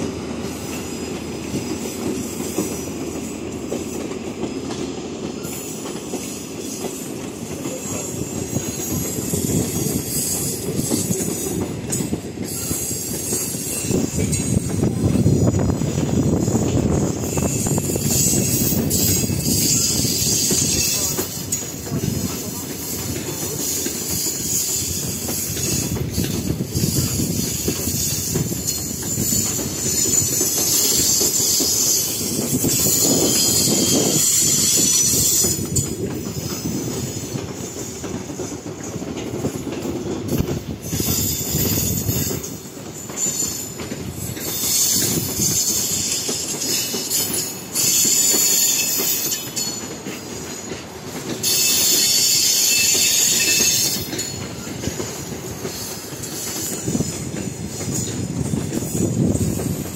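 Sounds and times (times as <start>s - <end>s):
train wheels rumbling and clicking: 0.0s - 59.9s
high-pitched wheel squeal: 23.6s - 35.8s, 44.4s - 49.8s, 51.4s - 54.2s.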